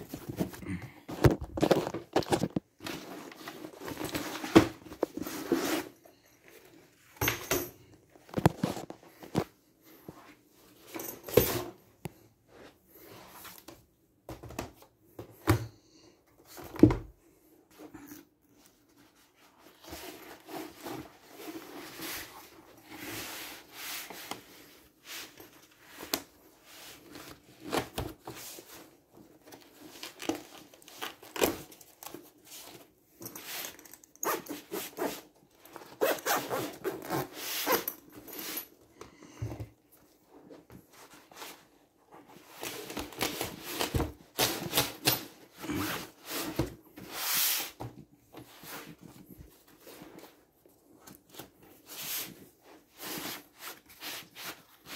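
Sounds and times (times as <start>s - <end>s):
zippers pulled: 34.2s - 35.2s, 35.9s - 38.5s.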